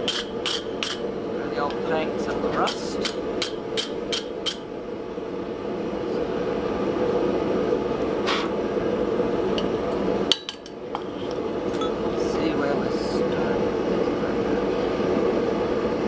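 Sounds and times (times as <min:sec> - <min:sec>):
wire brush scrubbing hot steel: 0:00.0 - 0:01.1, 0:02.5 - 0:04.6
steady low hum: 0:00.0 - 0:16.0.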